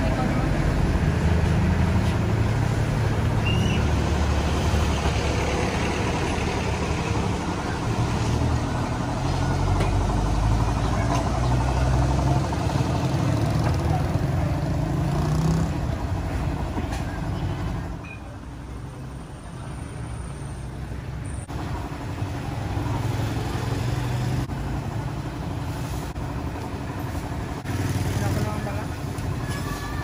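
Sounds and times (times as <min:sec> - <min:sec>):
engine idling: 0:04.4 - 0:14.8.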